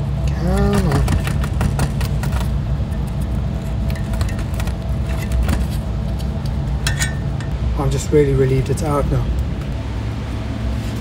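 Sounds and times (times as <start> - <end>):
steady low hum: 0.0 - 11.0
metal clicking and scraping: 0.6 - 7.6.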